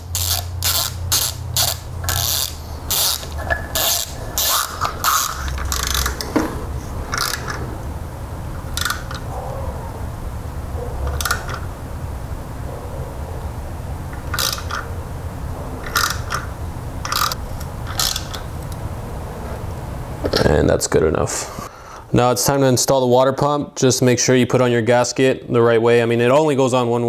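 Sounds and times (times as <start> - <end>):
socket ratchet clicking: 0.0 - 6.4, 7.1 - 7.6, 8.7 - 9.2, 11.1 - 11.6, 14.1 - 14.8, 15.8 - 18.8.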